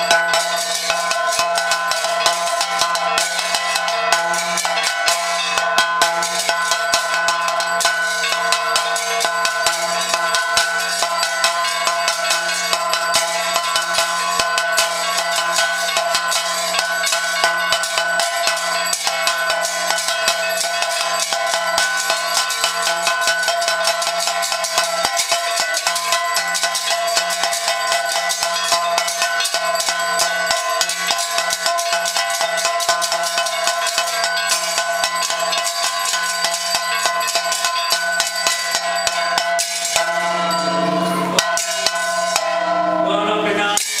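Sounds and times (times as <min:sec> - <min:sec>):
bells and percussion clanging: 0:00.0 - 0:44.0
steady ringing: 0:00.0 - 0:44.0
lower tone: 0:40.2 - 0:41.6.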